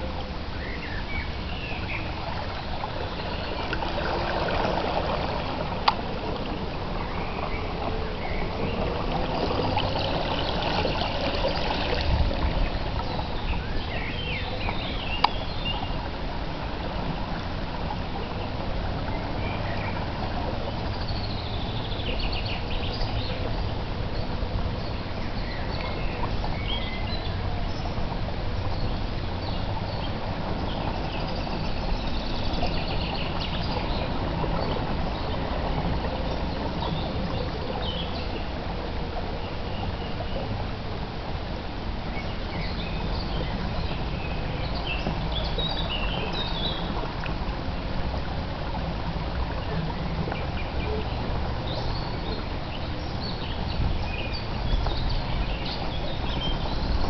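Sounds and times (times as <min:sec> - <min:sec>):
wheels swishing through water: 0:00.0 - 0:57.0
birds chirping: 0:00.6 - 0:16.0.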